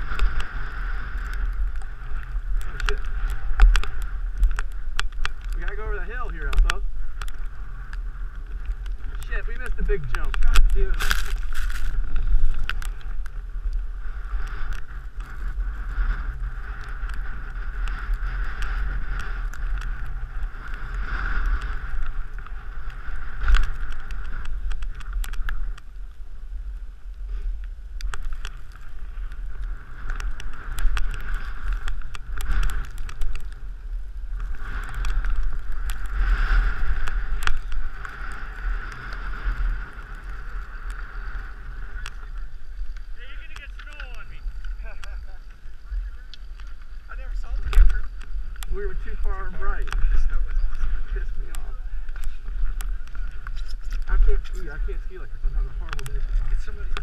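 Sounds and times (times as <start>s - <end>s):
snow hissing under rider: 0.0s - 4.3s, 13.4s - 24.4s, 33.6s - 43.5s
wind buffeting microphone: 0.0s - 57.0s
small clicks and knocks: 1.2s - 5.8s, 16.8s - 25.9s, 27.6s - 33.6s.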